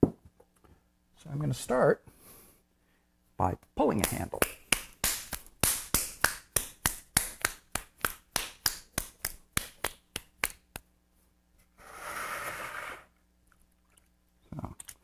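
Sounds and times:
hands slapping clay: 4.0s - 10.9s.

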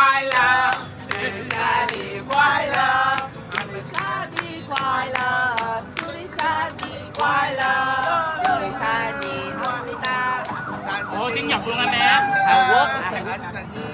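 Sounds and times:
voices singing together: 0.0s - 13.9s
hands clapping in time: 0.3s - 10.9s.

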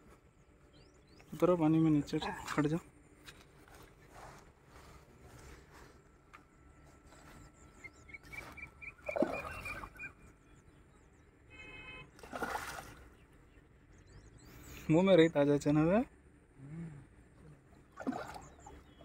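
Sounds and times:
weight splashing into water: 12.2s - 13.0s, 17.9s - 18.8s.

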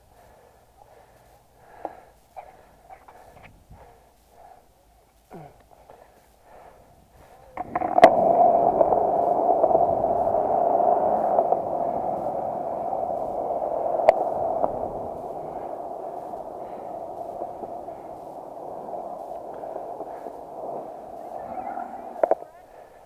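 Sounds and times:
skateboard rolling on concrete: 7.1s - 23.0s.

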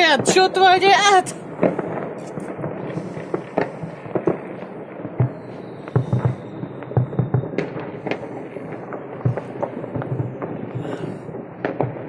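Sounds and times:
fireworks bangs and pops: 0.0s - 12.0s
faint high whistle: 5.3s - 7.6s.

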